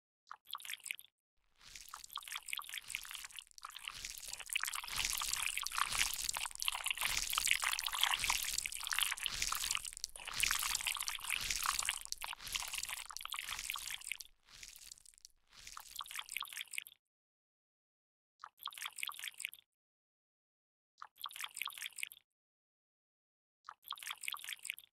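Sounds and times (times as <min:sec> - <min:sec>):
wet squelching clicks: 0:01.6 - 0:16.0.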